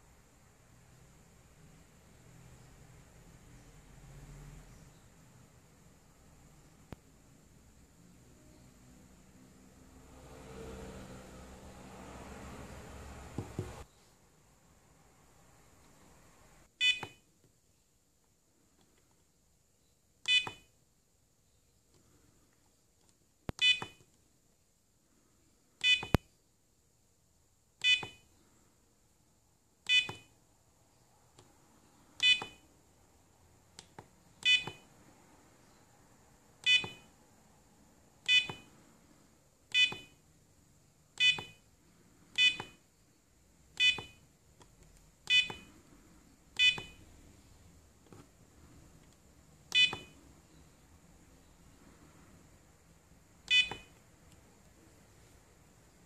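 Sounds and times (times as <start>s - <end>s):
short electronic beeps: 16.8s - 17.2s, 25.8s - 26.2s, 27.8s - 28.3s, 29.9s - 30.4s, 32.2s - 32.6s, 34.4s - 34.9s, 36.6s - 37.1s, 38.3s - 38.7s, 39.7s - 40.2s, 41.2s - 41.6s, 42.4s - 42.8s, 43.8s - 44.2s, 45.3s - 45.7s, 46.6s - 47.0s, 49.7s - 50.2s, 53.5s - 54.0s.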